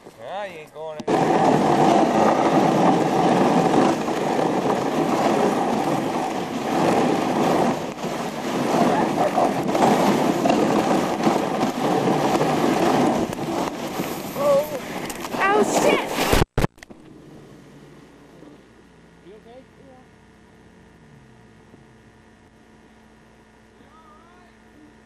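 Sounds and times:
sled runners scraping on snow: 1.0 - 16.5.

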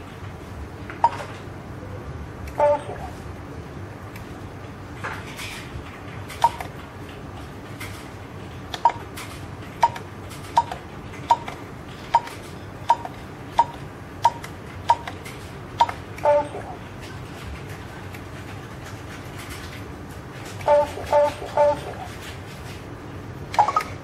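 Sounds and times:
keypad beeps: 1.0 - 1.3, 2.6 - 3.0, 6.4 - 6.7, 9.8 - 10.0, 10.6 - 15.2, 15.8 - 16.8, 20.6 - 22.1, 23.6 - 24.0.

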